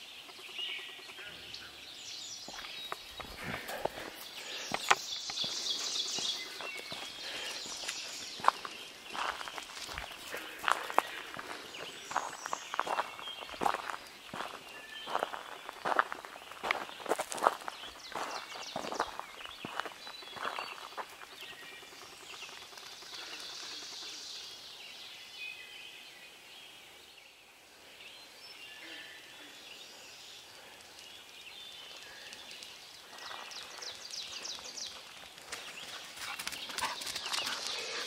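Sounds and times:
songbirds singing and trilling: 0:00.0 - 0:38.0
footsteps on gravel: 0:02.4 - 0:21.4.

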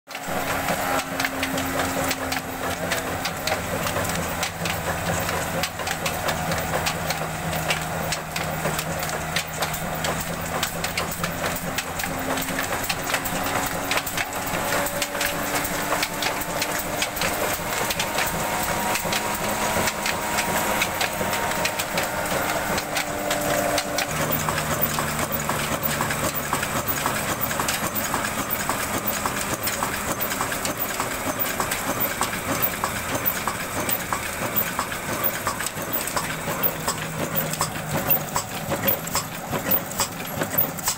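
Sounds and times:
diesel engine running: 0:00.1 - 0:40.9
rapid mechanical clatter: 0:00.1 - 0:40.9.

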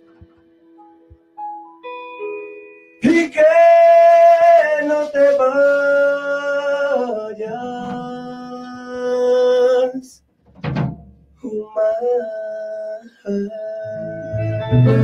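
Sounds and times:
man singing long held notes: 0:03.0 - 0:10.2, 0:11.4 - 0:15.0.

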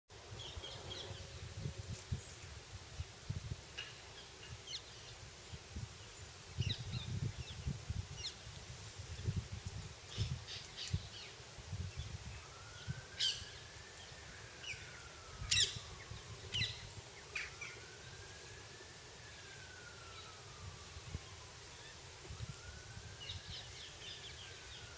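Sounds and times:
wind rumbling on microphone: 0:00.2 - 0:24.9
distant siren wailing: 0:10.3 - 0:24.9.

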